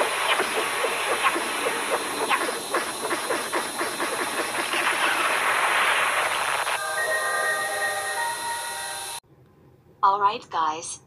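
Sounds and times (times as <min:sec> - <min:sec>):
quick chirps and clicks: 0:00.0 - 0:06.8
steady hiss: 0:00.0 - 0:09.2.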